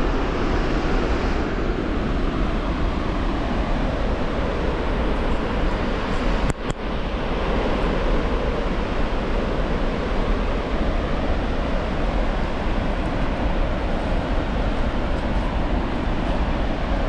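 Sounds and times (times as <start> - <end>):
waterfall rushing: 7.2 - 17.0.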